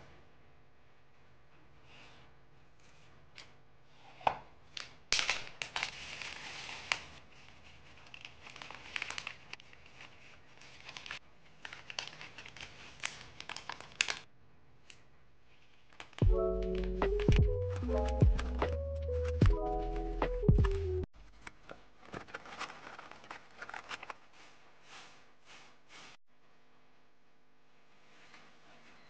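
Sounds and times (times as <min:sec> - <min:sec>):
plastic pouch crinkling: 0:05.2 - 0:14.3, 0:22.0 - 0:24.5.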